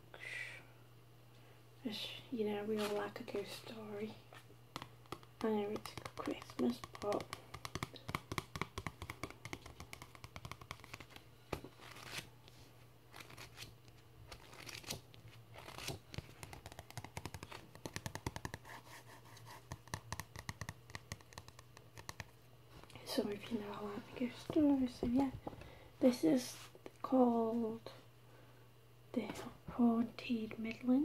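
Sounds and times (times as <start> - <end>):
fingernail tapping and scratching book: 4.7 - 11.2, 15.6 - 22.4.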